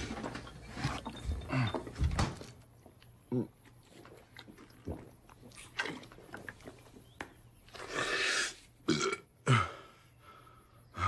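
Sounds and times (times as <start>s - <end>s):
man burping: 3.3s - 3.6s, 7.9s - 9.8s.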